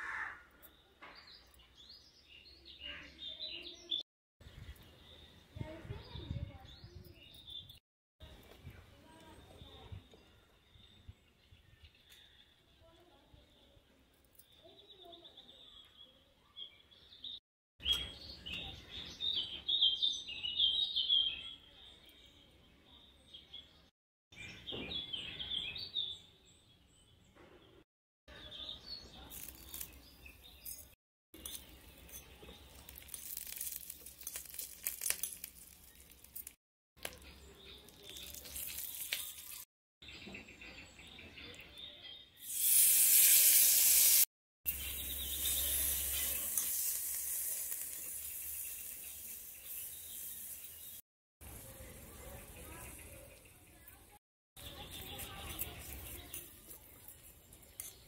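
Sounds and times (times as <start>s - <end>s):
hot oil sizzling in a pan: 42.4s - 44.3s, 45.2s - 51.0s
birds chirping: 44.7s - 58.0s.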